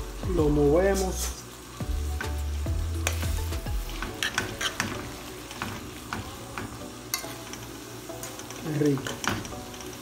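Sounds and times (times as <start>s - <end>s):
tomato sauce sizzling: 0.0s - 10.0s
spoon scraping pot: 4.0s - 5.1s.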